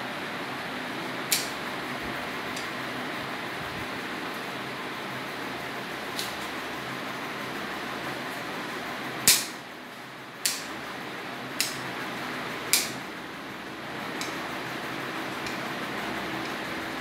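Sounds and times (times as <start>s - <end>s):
steady background hum: 0.0s - 17.0s
nail clippers clicking: 1.3s - 1.6s, 9.2s - 9.6s, 10.4s - 10.7s, 11.6s - 11.9s, 12.7s - 13.0s, 14.2s - 14.4s.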